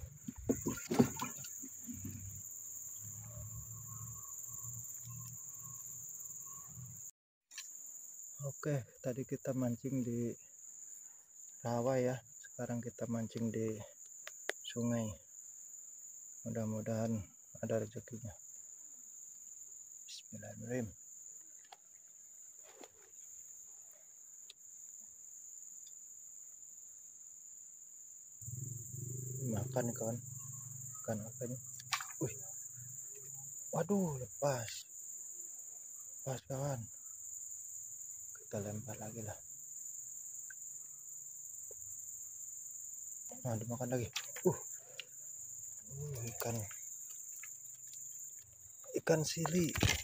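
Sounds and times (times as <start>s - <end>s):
lower insect note: 0.0s - 7.1s, 28.4s - 50.0s
insects droning: 0.0s - 50.0s.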